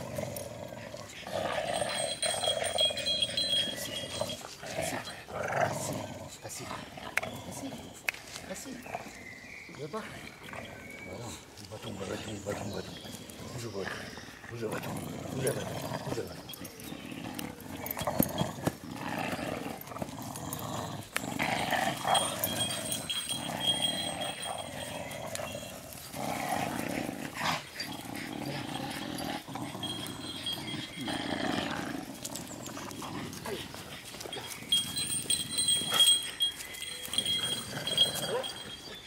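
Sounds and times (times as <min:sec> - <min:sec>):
dogs growling in play: 0:00.0 - 0:39.0.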